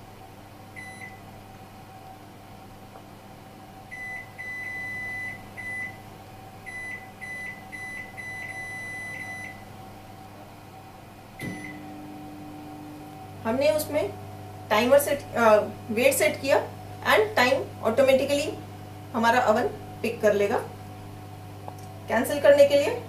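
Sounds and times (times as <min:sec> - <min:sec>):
steady low hum: 0:00.0 - 0:23.0
oven control panel beeps: 0:00.8 - 0:01.2, 0:03.9 - 0:06.0, 0:06.7 - 0:09.6, 0:11.4 - 0:12.2.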